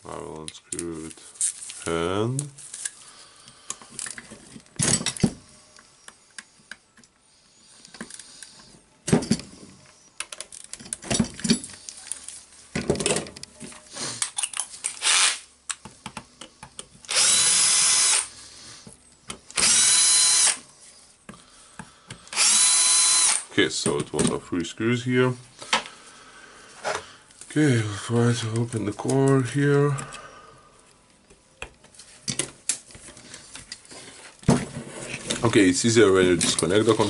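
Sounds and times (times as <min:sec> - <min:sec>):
metal parts and tools clinking: 0:03.7 - 0:05.3, 0:10.2 - 0:15.0
cordless drill running: 0:15.0 - 0:15.4, 0:17.1 - 0:18.3, 0:19.5 - 0:20.6, 0:22.3 - 0:23.5.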